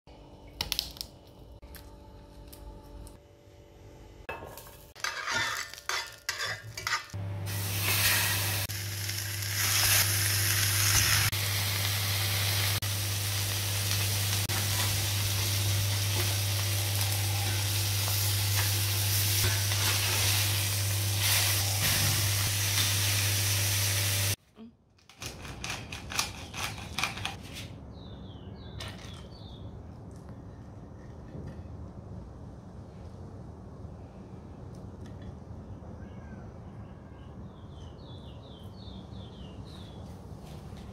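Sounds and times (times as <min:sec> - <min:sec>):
low steady hum: 0:00.1 - 0:04.8
food sizzling in skillet: 0:05.0 - 0:24.4.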